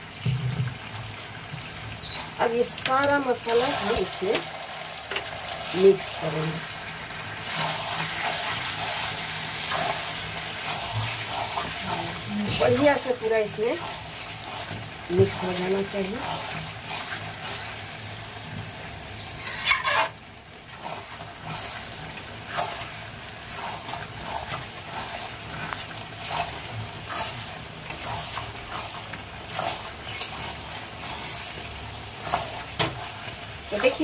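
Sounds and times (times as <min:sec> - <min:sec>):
food sizzling in a pan: 0:00.0 - 0:34.0
spatula scraping and clattering: 0:19.1 - 0:20.2, 0:20.8 - 0:31.6.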